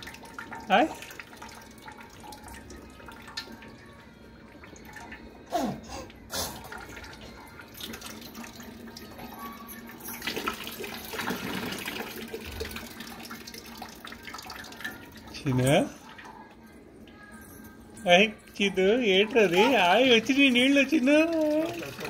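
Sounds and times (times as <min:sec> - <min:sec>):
water pouring from hand pump: 0:10.0 - 0:15.9, 0:18.5 - 0:22.0.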